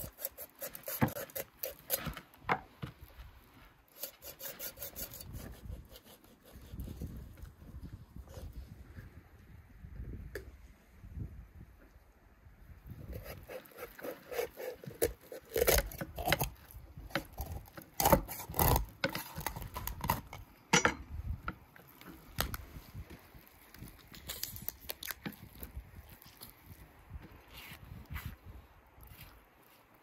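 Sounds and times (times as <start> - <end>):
knife cutting raw meat: 0.0 - 2.2, 3.9 - 7.3, 13.1 - 20.4.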